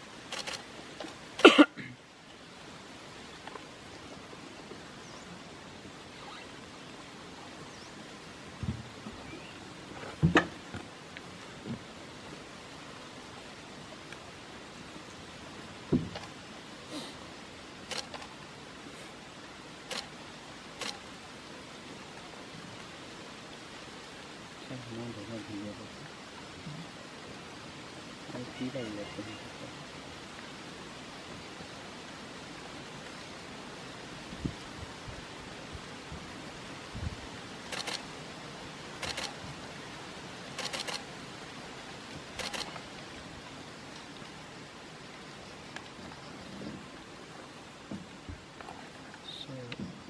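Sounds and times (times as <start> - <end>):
background hiss: 0.0 - 50.0
camera shutter rapid clicks: 17.9 - 18.3, 37.7 - 38.0, 39.0 - 39.4, 40.6 - 41.0, 42.4 - 42.7.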